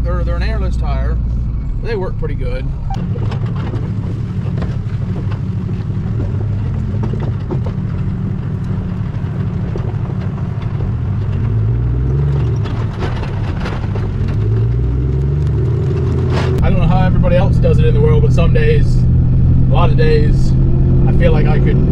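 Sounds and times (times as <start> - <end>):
trailer rattles and knocks: 0.0 - 21.9
truck road rumble: 0.0 - 21.9
rising engine tone: 5.3 - 21.9.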